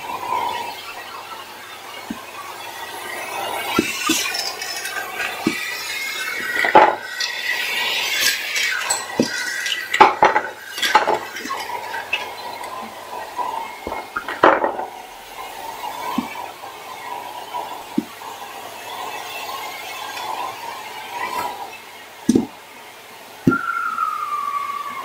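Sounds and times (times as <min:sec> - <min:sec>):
vacuum cleaner whine: 0:00.0 - 0:25.0
metallic clinks and clatters: 0:03.4 - 0:14.8.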